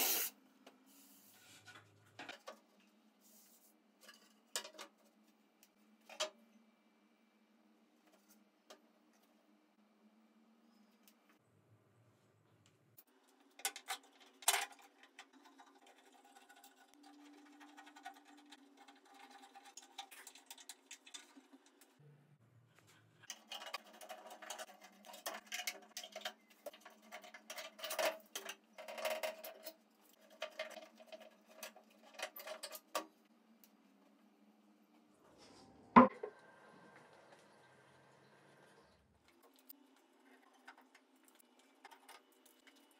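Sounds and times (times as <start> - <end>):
metal clamps clicking and rattling: 23.2 - 33.1.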